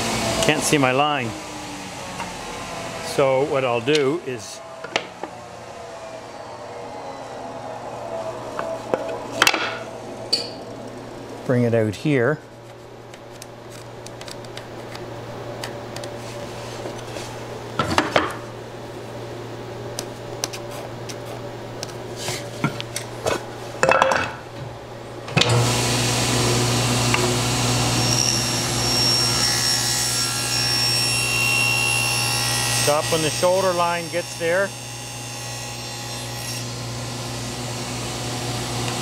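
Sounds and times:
table saw running with high whine: 0.0s - 10.2s, 25.4s - 39.0s.

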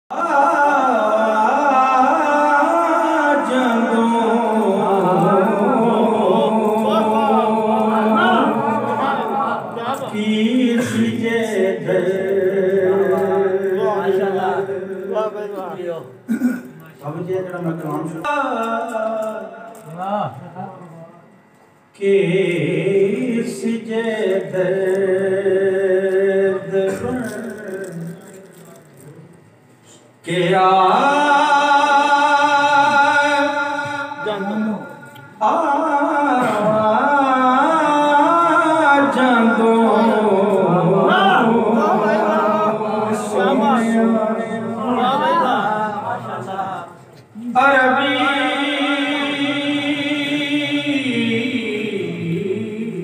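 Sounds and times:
man singing into a microphone: 0.1s - 8.8s, 30.2s - 44.8s
man chanting: 0.1s - 16.1s, 22.0s - 29.0s, 30.2s - 53.0s
steady low hum: 0.1s - 53.0s.

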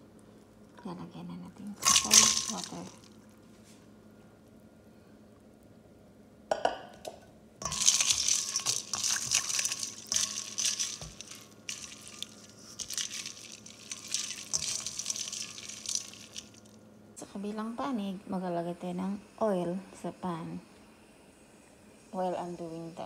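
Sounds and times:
ice clinking: 1.8s - 3.1s, 7.6s - 16.8s
water sloshing: 1.8s - 3.1s, 7.6s - 16.7s.

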